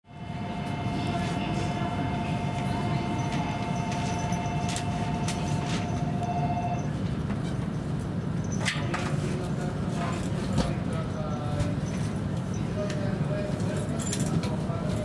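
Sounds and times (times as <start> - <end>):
two-note whine: 0.1 - 7.0
low train rumble: 0.1 - 15.0.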